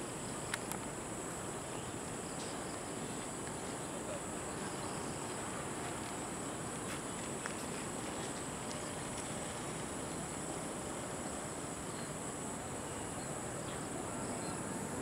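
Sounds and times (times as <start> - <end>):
outdoor background hiss: 0.0 - 15.0
faint clicks: 0.4 - 0.9.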